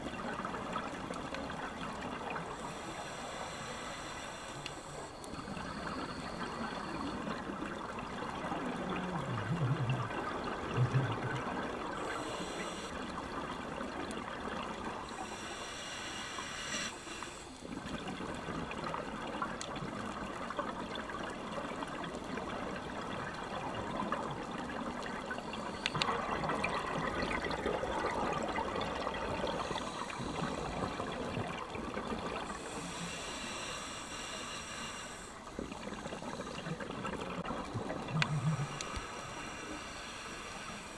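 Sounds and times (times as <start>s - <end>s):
hissing bursts of exhaled bubbles: 2.2s - 7.4s, 23.5s - 40.9s
underwater regulator bubbling: 35.6s - 40.9s.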